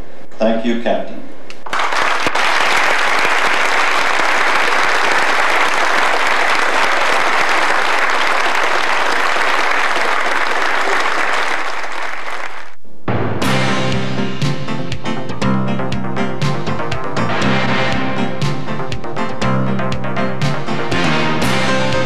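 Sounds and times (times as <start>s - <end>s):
audience applauding: 1.6s - 12.8s
music with a sharp hit: 13.1s - 22.0s.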